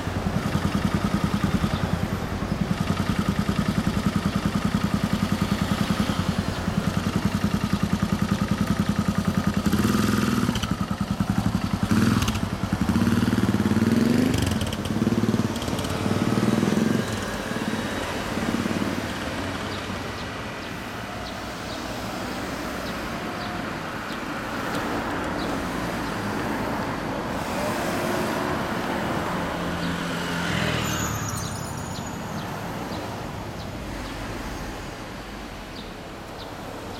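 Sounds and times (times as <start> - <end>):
motorcycle engine idling and revving: 0.0 - 36.9
passing traffic: 0.0 - 36.9.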